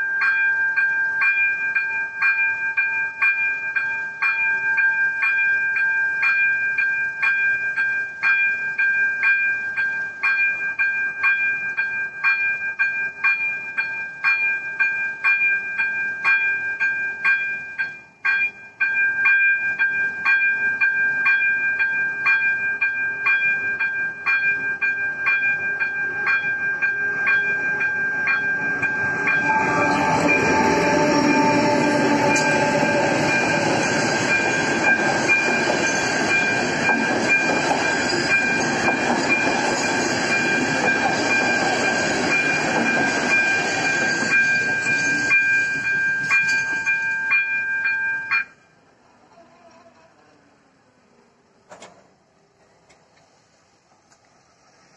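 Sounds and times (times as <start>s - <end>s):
level crossing warning bell: 0.0s - 48.8s
train wheels rumbling on rails: 1.1s - 48.4s
steady high tone: 16.8s - 48.8s.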